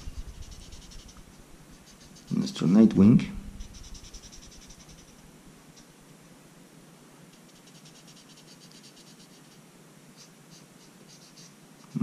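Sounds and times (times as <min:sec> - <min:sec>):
felt-tip marker rubbing on cardstock: 0:00.0 - 0:02.8, 0:03.6 - 0:05.2, 0:07.5 - 0:09.6, 0:10.2 - 0:12.0.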